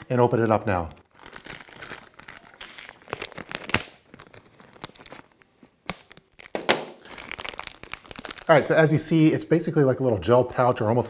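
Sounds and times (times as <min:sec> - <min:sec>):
plastic bag crinkling and tearing: 0:00.6 - 0:09.2.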